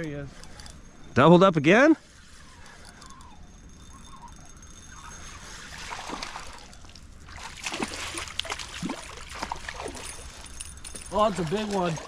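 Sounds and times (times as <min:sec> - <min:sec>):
river water running: 0:05.2 - 0:12.0
faint water splashes: 0:05.4 - 0:12.0.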